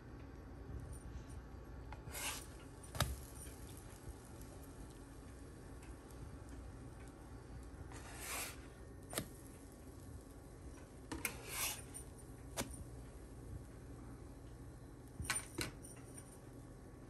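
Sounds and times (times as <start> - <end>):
spatula scraping pan: 2.0 - 2.6, 7.9 - 8.6, 11.2 - 11.9.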